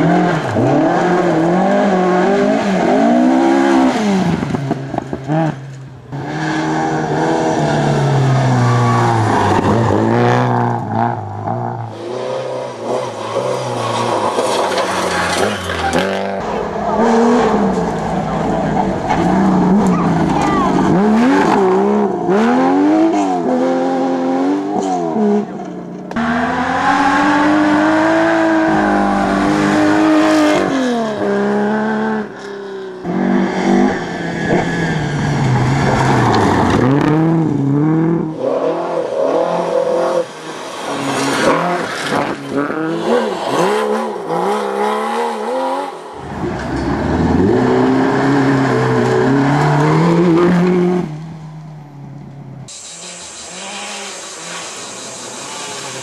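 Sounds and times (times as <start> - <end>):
gravel and tyre noise: 0.0 - 56.0
rally car engines revving: 0.0 - 56.0.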